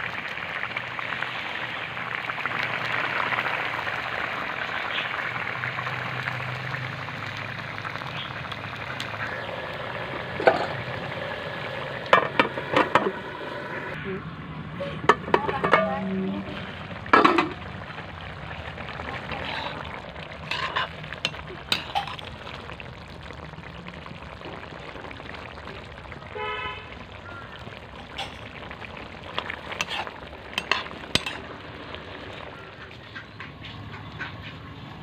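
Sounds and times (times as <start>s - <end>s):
curry simmering and sizzling: 0.0s - 35.0s
ladle scraping and clinking pan: 15.0s - 16.3s, 20.4s - 22.3s, 28.0s - 28.6s, 29.7s - 31.5s.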